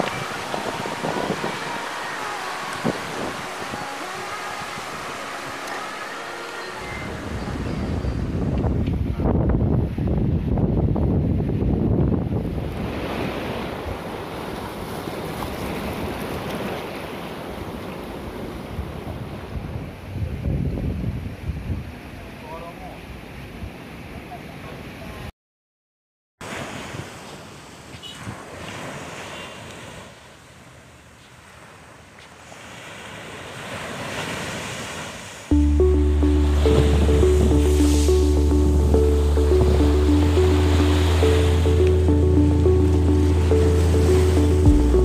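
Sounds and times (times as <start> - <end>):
waves breaking on rocky shore: 0.0 - 7.6, 26.4 - 35.5
wind buffeting microphone: 7.0 - 16.5, 18.7 - 22.0.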